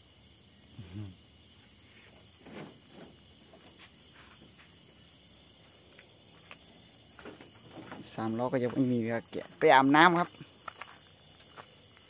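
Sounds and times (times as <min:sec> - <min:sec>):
night insects chirring: 0:00.0 - 0:12.0
short low vocal sound: 0:00.7 - 0:01.2.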